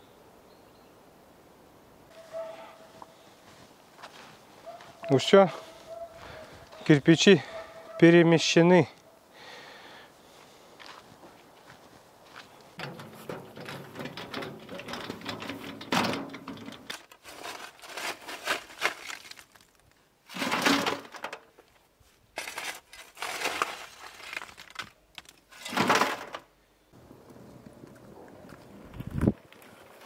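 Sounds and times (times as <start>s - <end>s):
shovel scraping into brick rubble: 16.9s - 19.6s, 22.4s - 24.6s.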